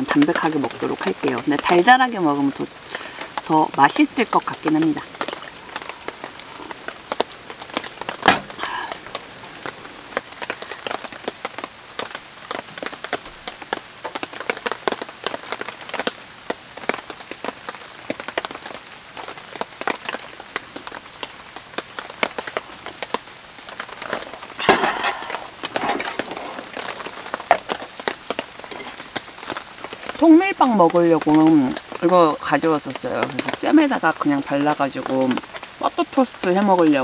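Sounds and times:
rain on a tarp: 0.0s - 37.0s
sharp knock: 8.2s - 8.6s.

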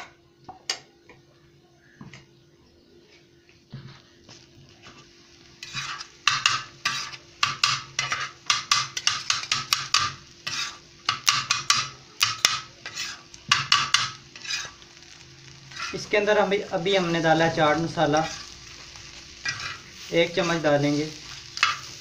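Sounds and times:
metal spatula scraping on griddle: 4.8s - 22.0s.

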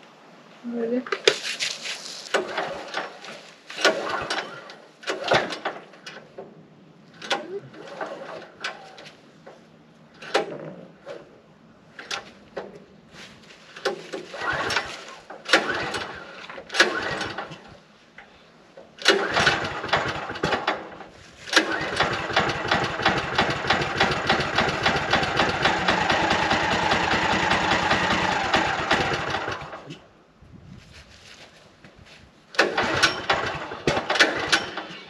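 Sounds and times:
gasoline engine sputtering and running: 19.0s - 30.0s, 32.5s - 35.0s.

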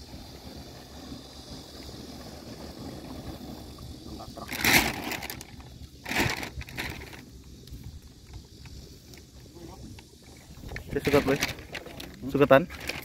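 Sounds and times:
plastic sack rustling: 4.5s - 7.2s, 11.0s - 13.0s.

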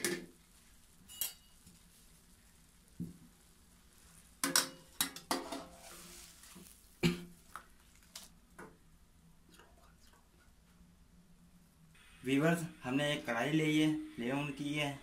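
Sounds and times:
metal tongs scraping a pan: 1.0s - 1.6s, 4.4s - 6.7s.

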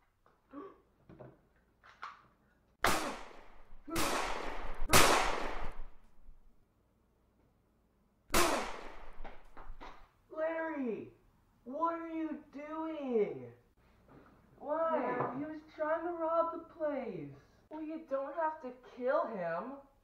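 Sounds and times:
pistol gunshots ringing: 2.8s - 6.0s, 8.3s - 9.8s.

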